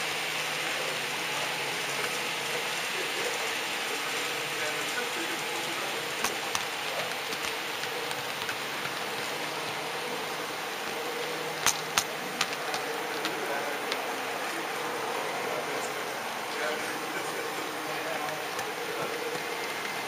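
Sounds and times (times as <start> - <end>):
model train rolling hiss: 0.0 - 20.0
wheels clicking over rail joints: 1.8 - 14.8.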